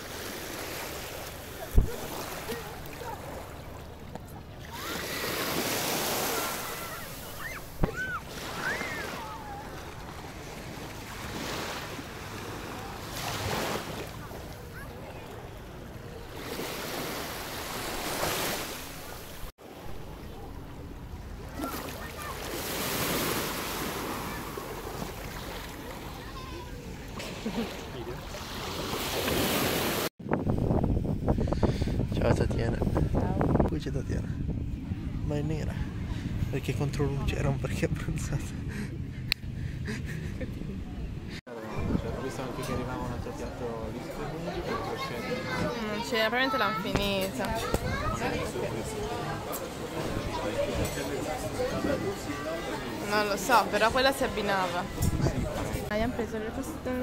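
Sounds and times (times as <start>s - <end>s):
waves washing over sand: 0.0s - 14.5s, 15.2s - 20.2s, 21.4s - 26.2s, 27.1s - 30.1s
sea water lapping at shore: 0.0s - 30.1s, 41.2s - 57.0s.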